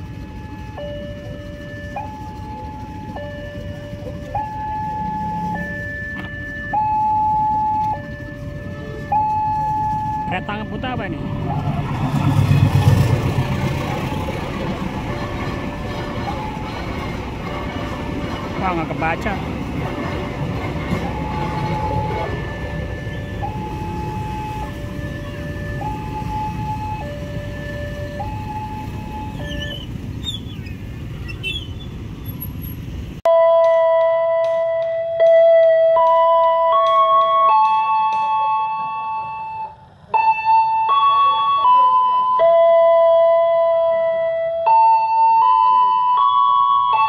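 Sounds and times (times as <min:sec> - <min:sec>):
motorcycle engines idling: 0:00.0 - 0:06.8
sustained keyboard notes: 0:00.0 - 0:29.6
level crossing two-tone alarm: 0:00.2 - 0:11.7, 0:20.9 - 0:29.7, 0:33.3 - 0:47.0.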